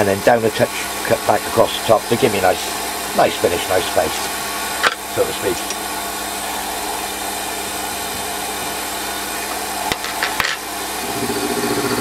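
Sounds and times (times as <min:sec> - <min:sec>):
low pulsing engine drone: 0:00.0 - 0:12.0
milling cutter cutting metal: 0:00.2 - 0:05.9.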